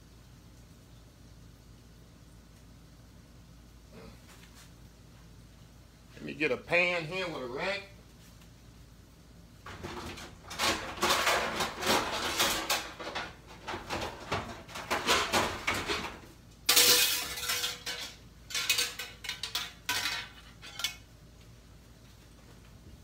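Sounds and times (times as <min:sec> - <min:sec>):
metal pan and rack clattering: 0:09.7 - 0:21.1.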